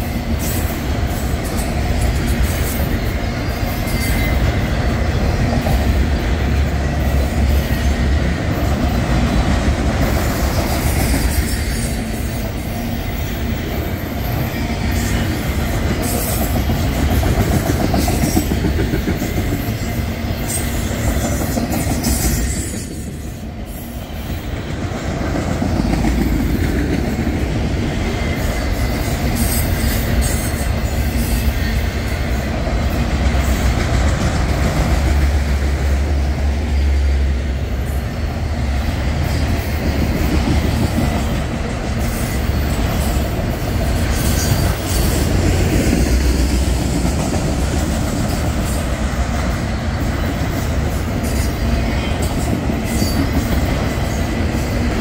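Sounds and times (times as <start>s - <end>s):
freight train wheels rumbling: 0.0s - 55.0s.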